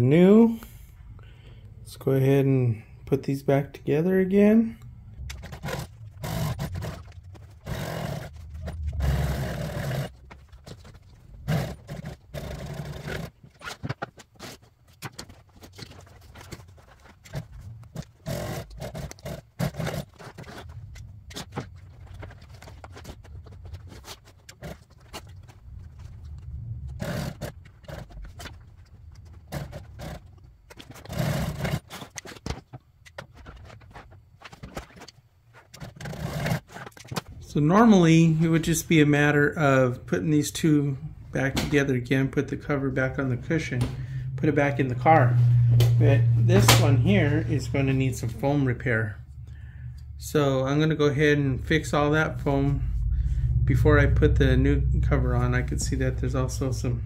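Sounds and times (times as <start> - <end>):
industrial sewing machine stitching: 5.4 - 8.4, 9.0 - 10.2, 11.5 - 13.4, 18.2 - 20.1.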